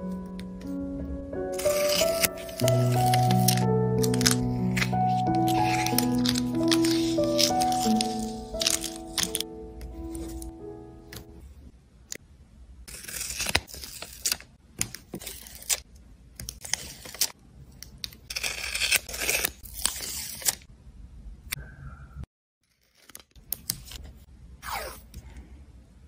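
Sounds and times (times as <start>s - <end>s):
craft knife trimming tape: 1.6s - 9.4s
tape being unrolled and torn: 1.6s - 10.5s, 12.9s - 17.4s, 18.0s - 20.6s.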